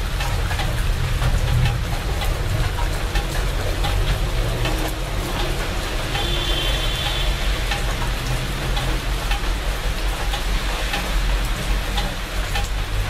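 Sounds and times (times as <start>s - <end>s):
rain drops ticking on leaves: 0.0s - 13.0s.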